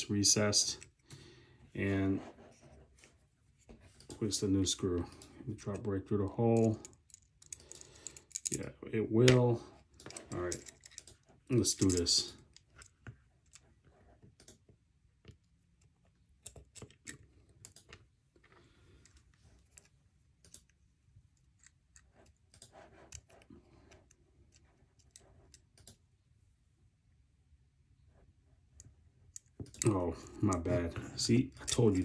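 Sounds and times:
small metal parts clicking: 6.6s - 8.6s, 10.0s - 13.6s.

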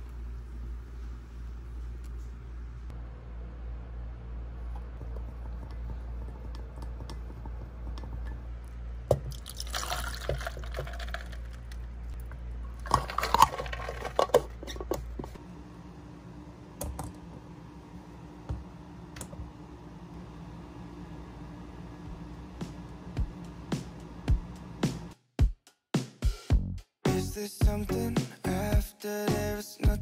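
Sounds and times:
low hum: 0.0s - 25.1s
liquid pouring and splashing: 9.2s - 11.8s.

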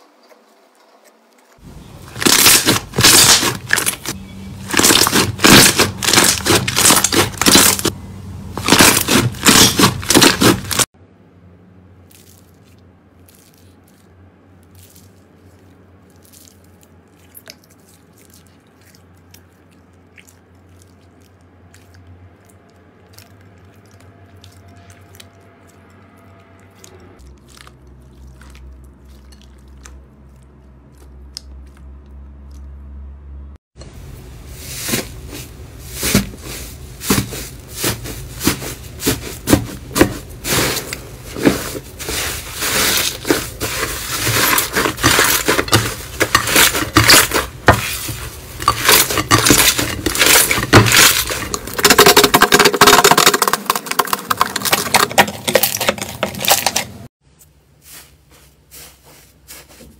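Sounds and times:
slime crackling: 1.6s - 8.0s, 8.6s - 11.0s.

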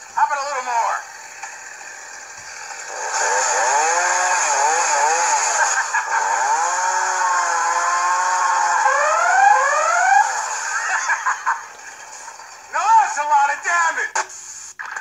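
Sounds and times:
chainsaw engine revving: 1.0s - 12.7s.

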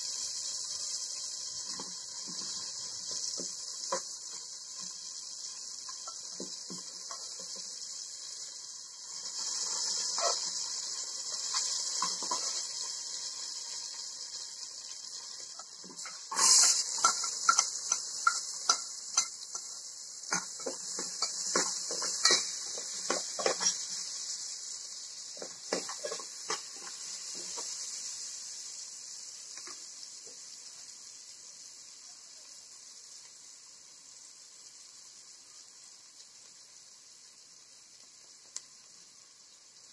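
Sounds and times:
steady hiss: 0.0s - 39.9s
metal spoon scraping a pot: 9.4s - 10.7s, 15.6s - 19.7s.

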